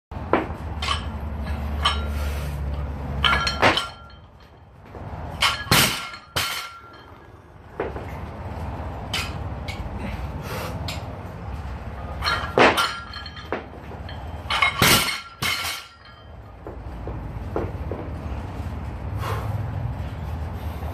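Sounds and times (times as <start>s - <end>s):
barbell plates clanking: 3.1s - 4.7s, 5.3s - 8.3s, 12.0s - 16.5s.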